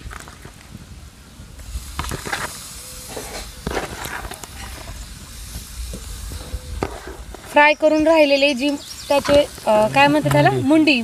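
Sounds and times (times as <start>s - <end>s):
fish sizzling in hot oil: 1.6s - 10.0s.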